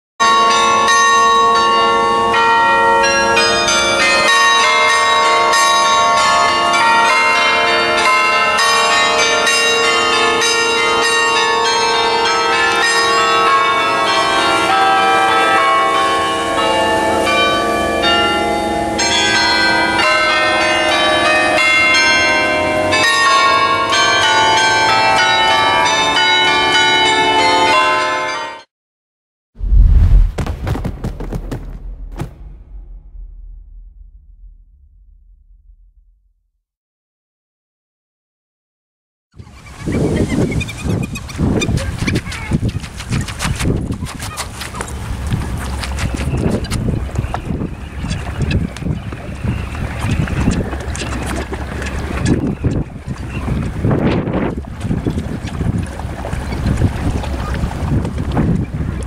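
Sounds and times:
bells ringing: 0.2 - 28.7.

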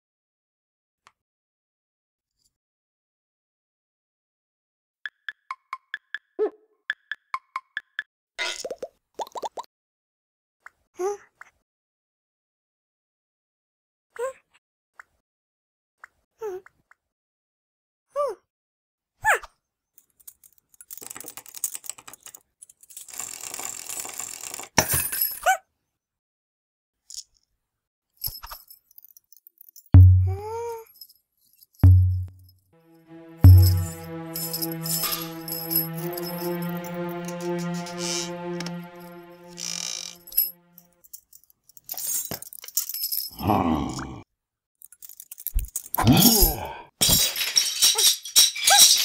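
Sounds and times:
held music chord: 30.0 - 30.6, 31.8 - 40.9.

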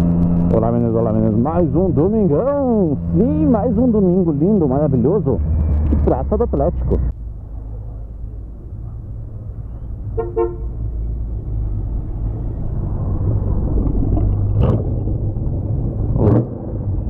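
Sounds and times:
motorcycle engine rumble: 0.0 - 17.0
wind: 0.0 - 17.0
vehicle horn beeps: 10.2 - 10.7.

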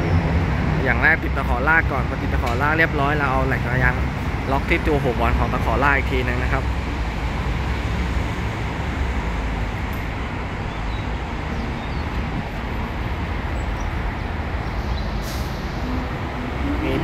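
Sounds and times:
traffic rumble: 0.0 - 17.0.

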